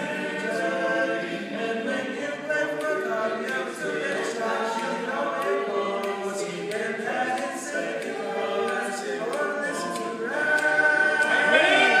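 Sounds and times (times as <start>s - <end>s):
men singing barbershop harmony: 0.0s - 12.0s.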